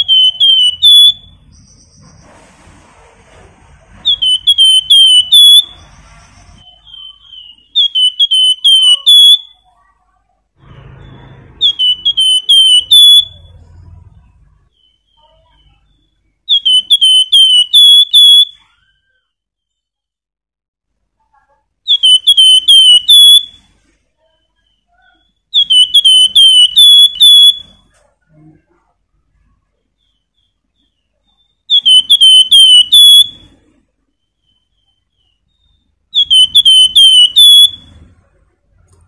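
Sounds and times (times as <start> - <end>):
bird singing whistled phrases: 0.0 - 2.2, 4.0 - 9.7, 10.8 - 13.7, 14.7 - 19.2, 21.8 - 27.8, 30.0 - 33.6, 34.2 - 38.0.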